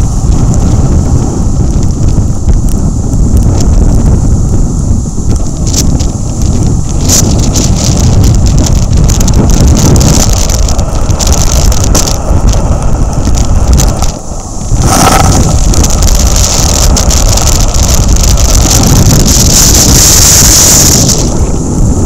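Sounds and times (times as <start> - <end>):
storm surf breaking: 0.0 - 22.0
wind buffeting microphone: 0.0 - 22.0
hiss of foam and spray: 19.2 - 22.0.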